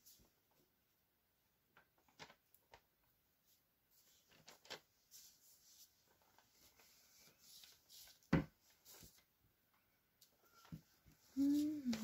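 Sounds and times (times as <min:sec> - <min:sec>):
faint rustling and handling: 0:01.7 - 0:12.0.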